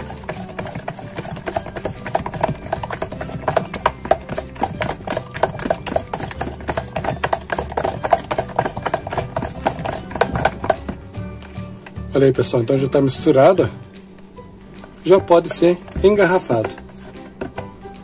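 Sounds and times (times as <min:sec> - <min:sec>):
utensil scraping plastic bowl: 0:00.0 - 0:11.0, 0:14.9 - 0:17.8.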